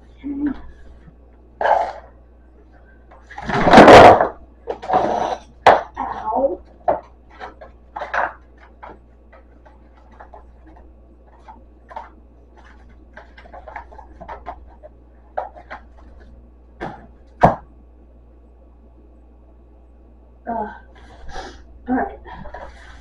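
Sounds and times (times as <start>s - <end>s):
faint low hum: 0.0s - 23.0s
packages knocking on shelf: 16.8s - 17.7s.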